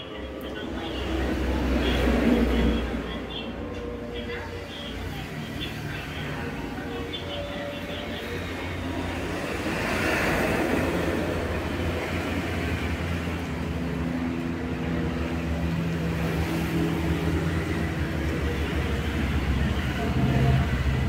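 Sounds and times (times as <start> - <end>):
passing vehicles rumbling: 0.0 - 21.0.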